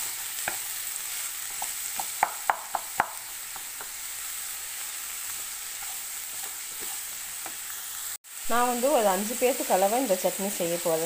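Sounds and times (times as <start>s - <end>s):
onions sizzling in oil: 0.0s - 11.0s
spatula knocking against pan: 1.6s - 3.9s.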